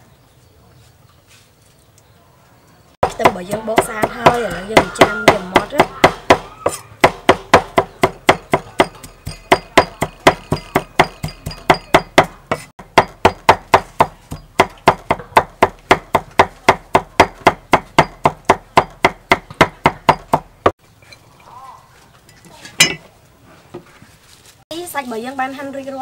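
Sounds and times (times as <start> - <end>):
knife chopping on wooden block: 3.0 - 20.5.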